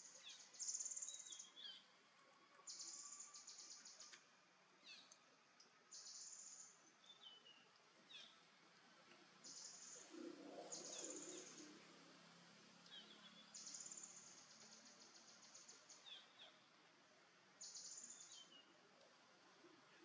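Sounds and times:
bird chirps: 0.0 - 1.9, 2.6 - 4.2, 9.4 - 11.8, 12.9 - 16.6, 17.6 - 18.7.

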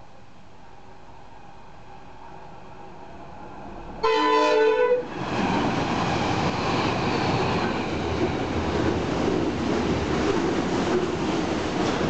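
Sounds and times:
train rolling on rails: 0.6 - 12.0
train horn blast: 4.0 - 5.1.

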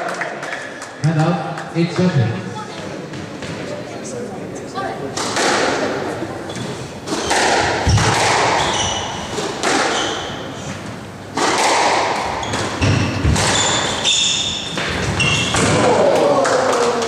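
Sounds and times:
racket striking ball: 5.2 - 10.5, 11.3 - 14.0
shoes squeaking on wooden floor: 6.5 - 10.8, 12.3 - 15.7.

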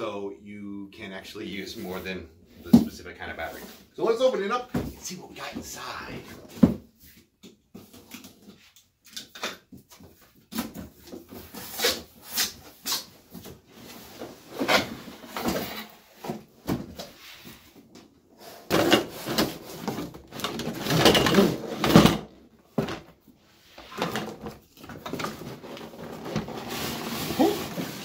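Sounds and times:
cardboard rustling and scraping: 18.5 - 28.0.

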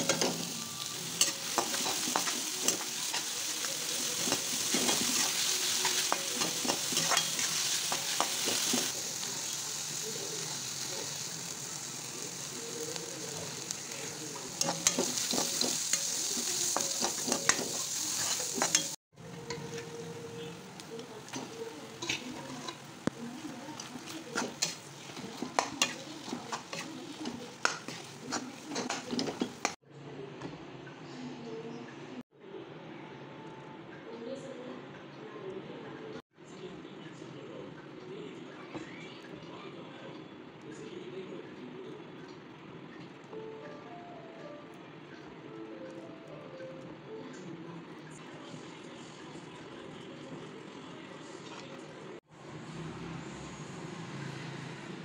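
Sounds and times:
onions sizzling in oil: 0.0 - 29.8
spatula scraping pan: 21.2 - 29.8
metal spatula scraping frying pan: 21.4 - 22.9.

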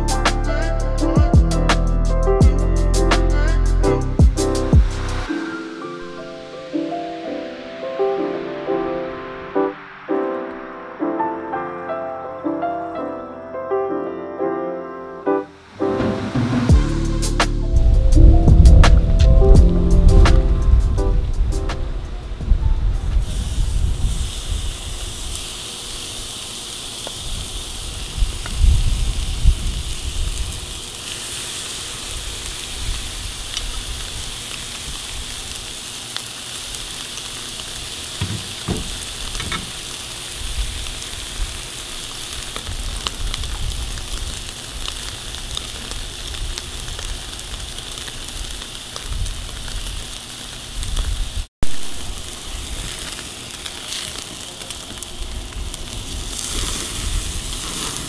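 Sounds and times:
low thumps and rumbles: 16.7 - 23.2, 38.2 - 39.6
steaks sizzling on a grill: 23.1 - 58.0.

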